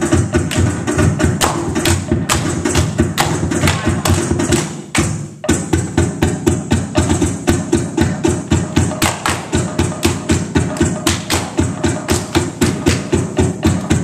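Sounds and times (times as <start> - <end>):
fast wooden percussion: 0.0 - 14.0.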